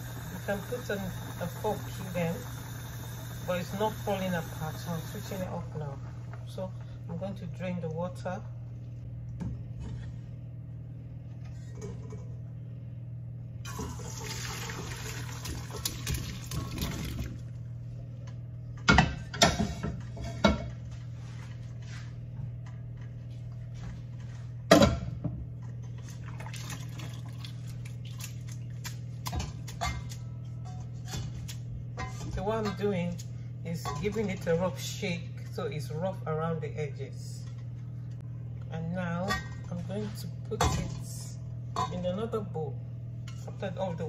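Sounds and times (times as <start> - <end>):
water pouring into a colander: 13.7 - 17.4, 26.2 - 28.4.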